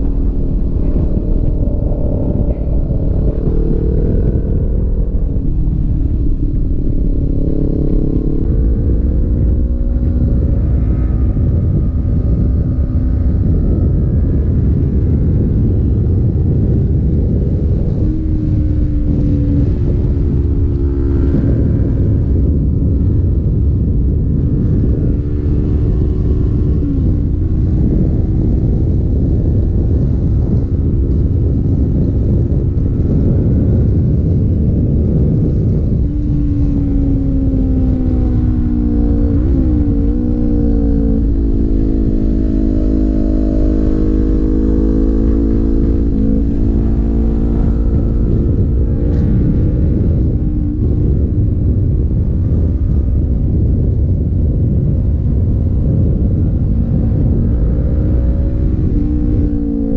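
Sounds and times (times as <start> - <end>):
motorcycle engine running: 0.0 - 59.9
wind rumble on microphone: 0.0 - 59.9.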